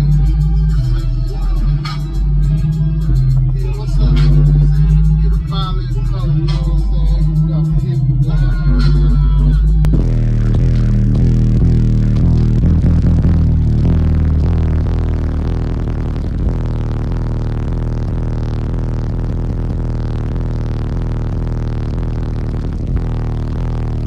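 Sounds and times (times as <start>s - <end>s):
bass-heavy rap music: 0.0s - 24.0s.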